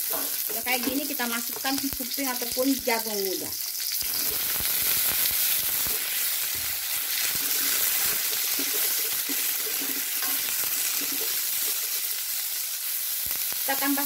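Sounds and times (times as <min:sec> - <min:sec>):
spatula scraping and knocking pan: 0:00.0 - 0:01.8, 0:07.3 - 0:11.8
food sizzling in hot oil: 0:00.0 - 0:14.0.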